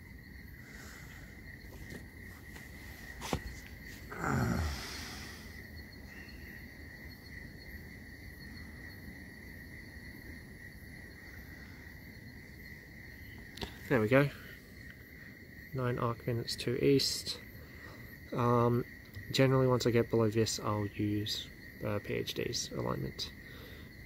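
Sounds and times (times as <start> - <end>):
crickets trilling: 0.0 - 24.0.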